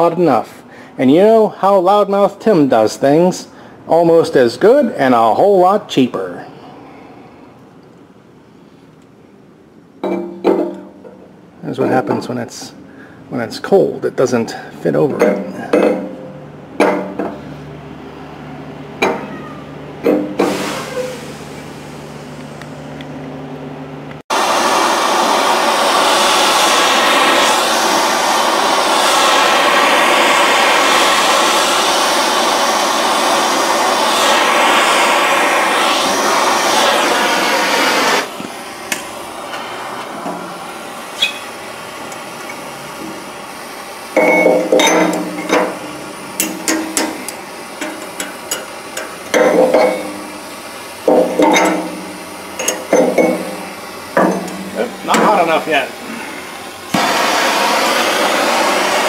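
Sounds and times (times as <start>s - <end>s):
propane torch burning: 18.9s - 22.6s, 24.2s - 59.0s.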